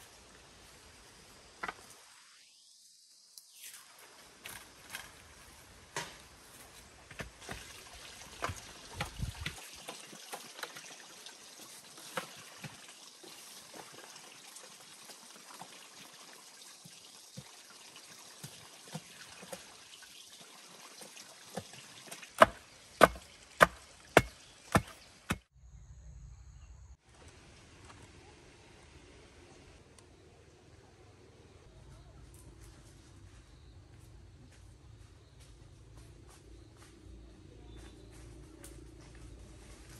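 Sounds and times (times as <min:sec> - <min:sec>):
chopping blows on bamboo: 0:22.4 - 0:25.5.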